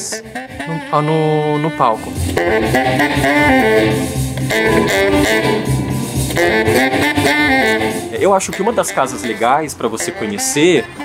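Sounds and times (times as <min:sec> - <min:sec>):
saxophone melody: 0:00.0 - 0:11.0
backing beat: 0:02.0 - 0:09.5.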